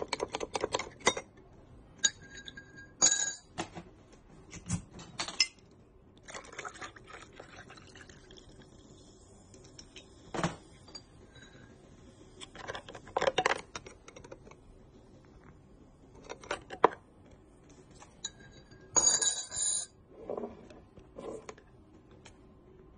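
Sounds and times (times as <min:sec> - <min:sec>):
ice and spoon clinking in glass: 0:18.2 - 0:19.9.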